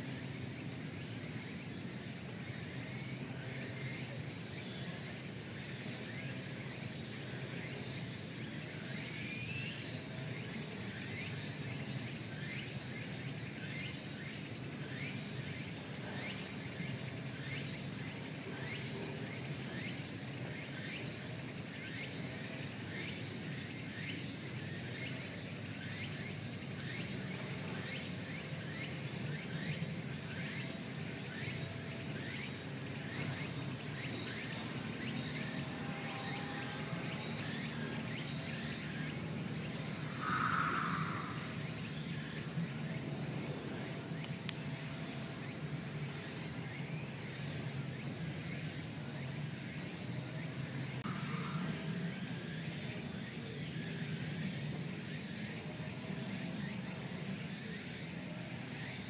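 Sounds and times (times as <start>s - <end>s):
steady low hum: 0.0s - 54.7s
high downward-sliding call: 39.9s - 42.1s.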